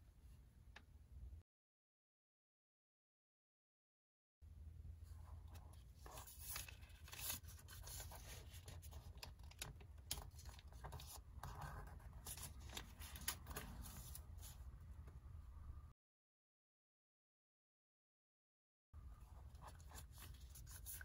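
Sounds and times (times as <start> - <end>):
paper rustling and crackling: 5.5 - 14.6.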